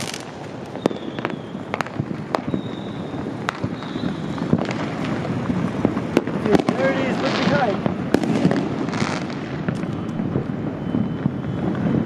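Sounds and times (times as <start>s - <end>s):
fireworks bangs and pops: 0.0s - 12.0s
fireworks crackling rumble: 0.0s - 12.0s
faint high whistles: 0.7s - 4.6s, 9.8s - 12.0s.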